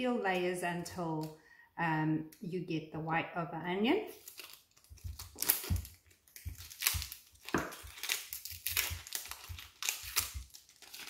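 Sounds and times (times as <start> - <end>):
onion skin crackling: 4.1 - 11.0.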